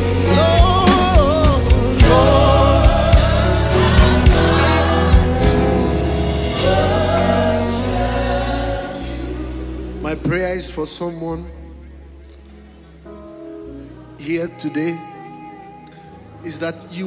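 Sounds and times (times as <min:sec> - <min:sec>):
choir and congregation singing: 0:00.0 - 0:10.7
instrumental accompaniment: 0:00.0 - 0:17.0.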